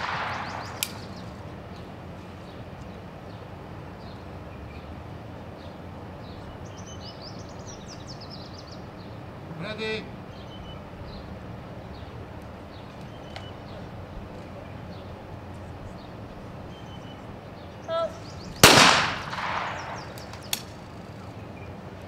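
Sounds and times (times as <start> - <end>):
shotgun shot: 0.0 - 1.1, 18.6 - 20.2
sharp click: 0.0 - 1.2, 19.6 - 20.8
person shouting: 17.9 - 18.2.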